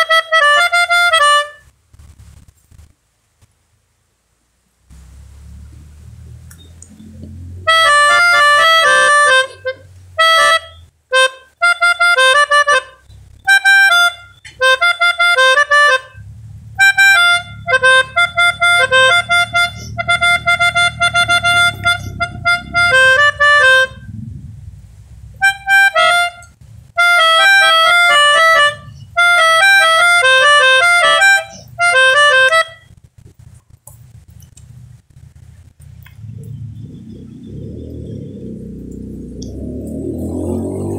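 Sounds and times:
melodica playing quick notes: 0:00.0 - 0:01.7, 0:07.0 - 0:16.2, 0:16.8 - 0:24.0, 0:25.4 - 0:32.9.

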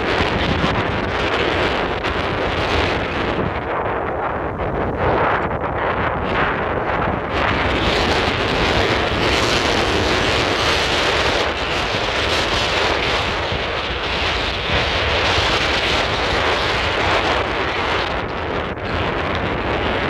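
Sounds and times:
wind blowing across microphone: 0:00.0 - 0:20.0.

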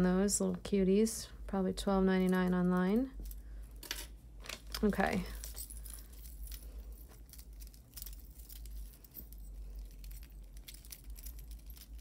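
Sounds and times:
jewelry chains clinking: 0:04.8 - 0:12.0.

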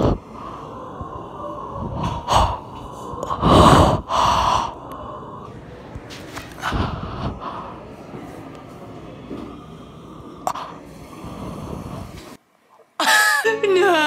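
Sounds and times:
person breathing loudly through mouth: 0:00.0 - 0:05.8, 0:06.4 - 0:08.2, 0:09.3 - 0:12.4.

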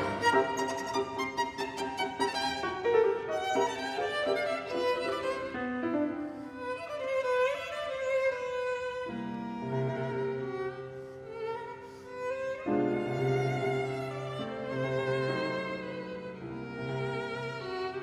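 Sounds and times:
piano chords: 0:00.0 - 0:06.3
violin playing melody: 0:00.0 - 0:18.0.

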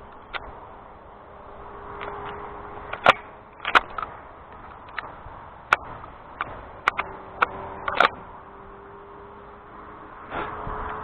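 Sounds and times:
shotgun handling clicks and taps: 0:02.9 - 0:05.1, 0:05.7 - 0:08.2.

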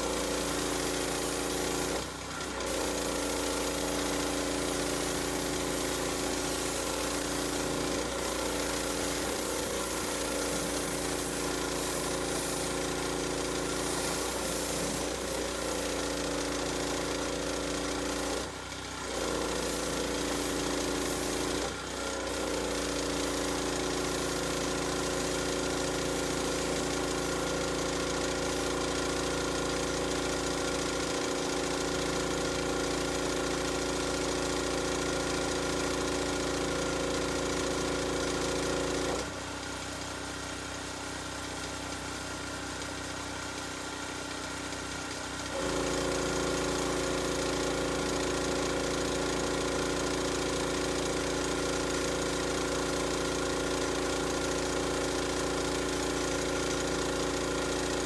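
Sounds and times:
water spray hissing: 0:00.0 - 0:18.3, 0:19.2 - 0:29.3
pressure washer drone: 0:00.0 - 0:58.0.

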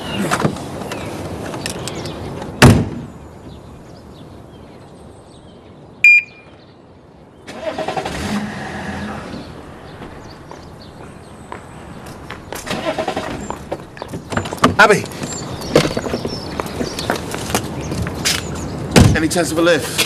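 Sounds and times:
car door slamming: 0:02.6 - 0:03.1
short electronic beep: 0:06.0 - 0:06.6
car engine cranking: 0:07.5 - 0:09.0, 0:12.7 - 0:13.5.

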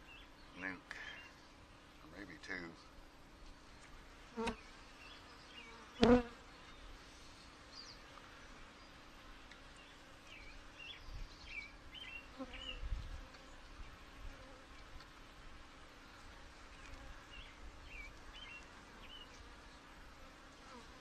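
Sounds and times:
bees buzzing: 0:04.3 - 0:06.5.

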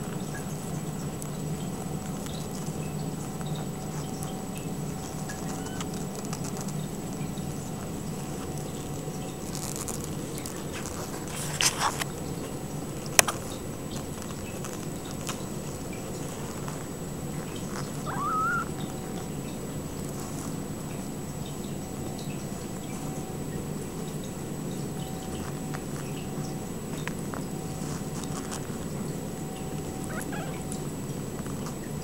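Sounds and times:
kittens pattering on blanket: 0:00.0 - 0:32.0
kitten mewing: 0:05.2 - 0:06.2, 0:18.0 - 0:18.8, 0:30.0 - 0:30.8.

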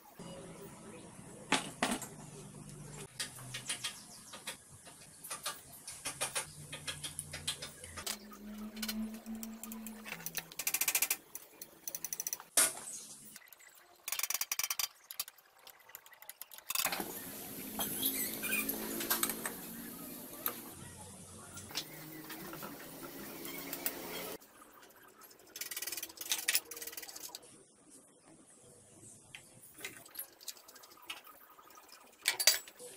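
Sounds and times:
metal parts clicking and tapping: 0:03.1 - 0:12.5, 0:14.0 - 0:16.9, 0:25.6 - 0:27.4.

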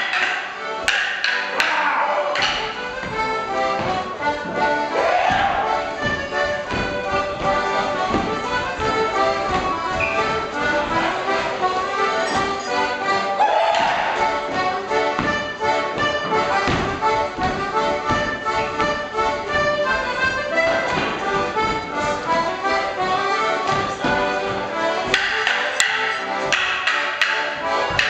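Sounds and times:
wooden sticks clacking: 0:00.0 - 0:03.2, 0:25.0 - 0:28.0
live folk dance tune: 0:00.0 - 0:28.0
shoes stepping on wooden floor: 0:02.4 - 0:28.0.

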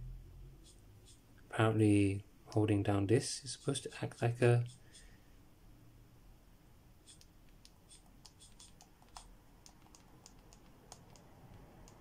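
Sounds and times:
stylus tapping on glass screen: 0:07.1 - 0:12.0.

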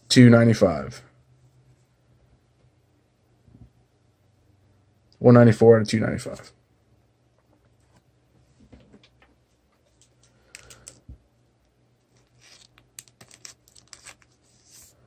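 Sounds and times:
card sliding into plastic sleeve: 0:12.2 - 0:15.0.

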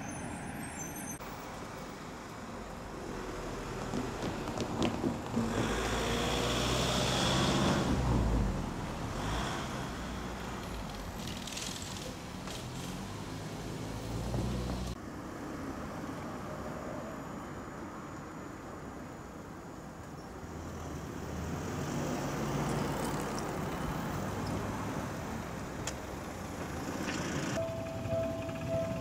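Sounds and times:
road vehicle engine: 0:00.0 - 0:18.1, 0:19.9 - 0:29.0
traffic noise: 0:00.0 - 0:29.0.

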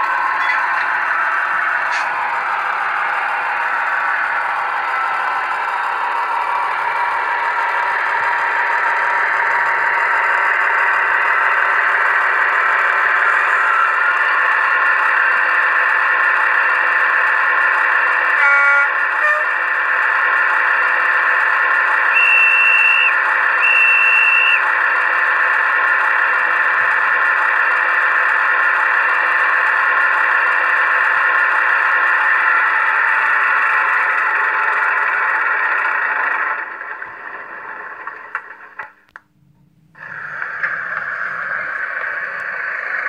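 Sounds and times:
model diesel engine sound: 0:00.0 - 0:43.0
locomotive horn blasts: 0:18.4 - 0:19.6.

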